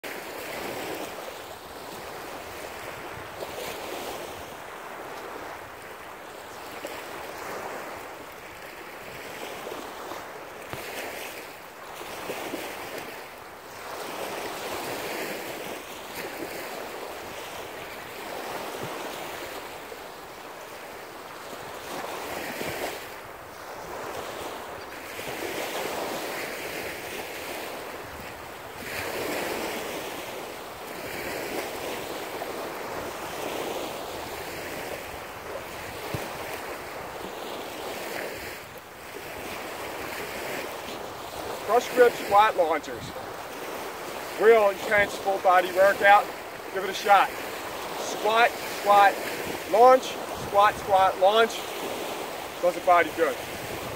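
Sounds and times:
small waves washing on sand: 0:00.0 - 0:53.9
wind buffeting microphone: 0:42.8 - 0:45.1, 0:53.3 - 0:53.9.

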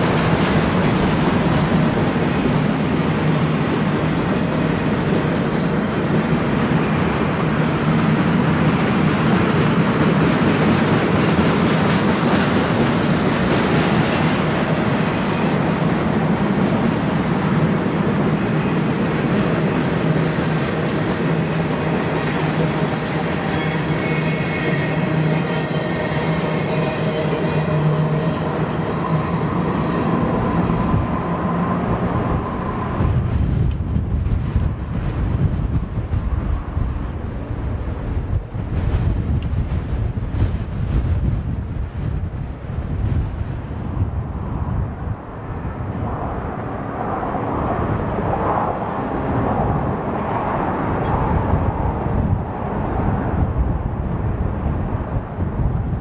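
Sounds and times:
train wheels rumbling on rail: 0:00.0 - 0:56.0
wind buffeting microphone: 0:28.4 - 0:56.0.

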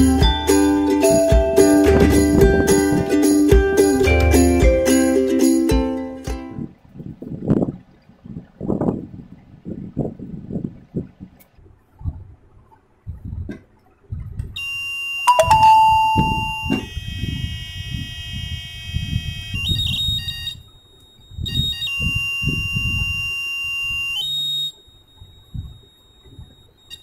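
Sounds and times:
high electronic alarm tone: 0:14.6 - 0:27.0.

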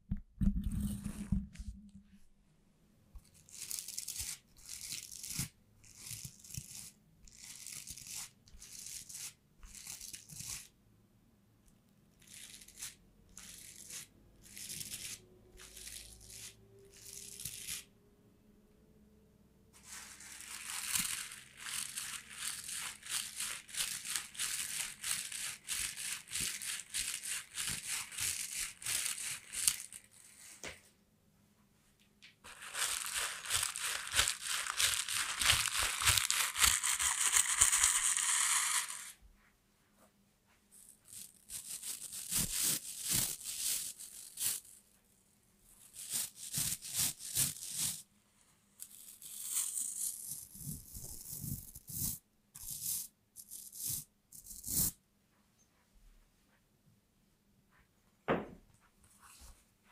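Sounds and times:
toilet brush scrubbing: 0:19.8 - 0:30.2, 0:32.5 - 0:39.1.

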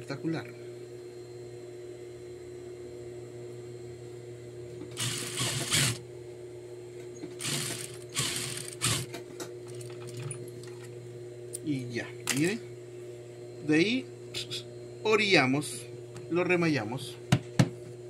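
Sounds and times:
sewing machine motor humming: 0:04.9 - 0:06.0, 0:07.4 - 0:09.1
sewing machine stitching: 0:05.0 - 0:06.0, 0:07.4 - 0:09.1.

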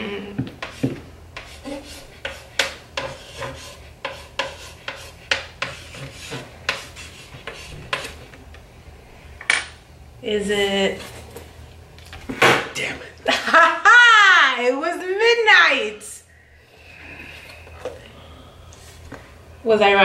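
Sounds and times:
chalk scratching on chalkboard: 0:00.6 - 0:08.2.

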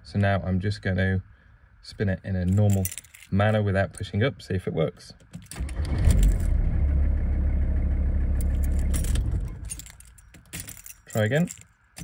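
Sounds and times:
keys jangling: 0:02.5 - 0:04.1, 0:05.2 - 0:06.5, 0:08.4 - 0:12.0
diesel engine cranking: 0:05.3 - 0:12.0.

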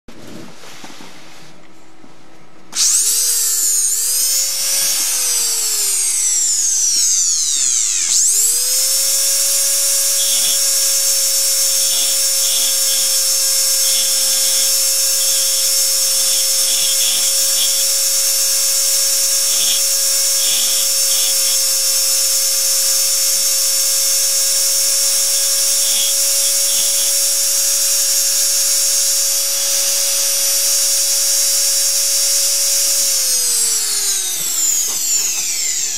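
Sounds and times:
power engraver whine: 0:02.8 - 0:35.9.

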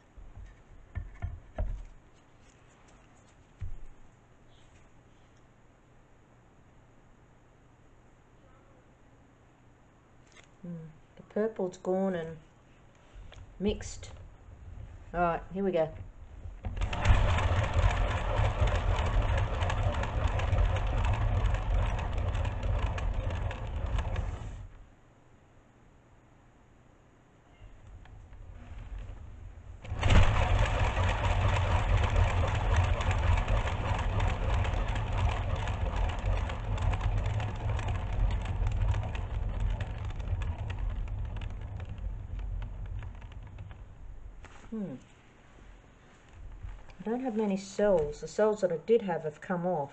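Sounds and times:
turntable bearing rumbling: 0:00.0 - 0:02.0, 0:13.4 - 0:24.9, 0:27.7 - 0:44.8
small rattling clicks: 0:15.9 - 0:24.8, 0:27.8 - 0:44.6
paint ticking on plastic sheeting: 0:29.8 - 0:44.6.

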